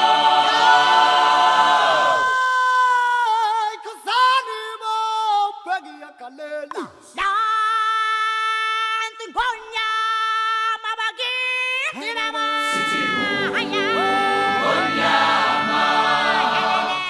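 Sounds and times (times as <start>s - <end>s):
person singing long notes: 12.5s - 17.0s.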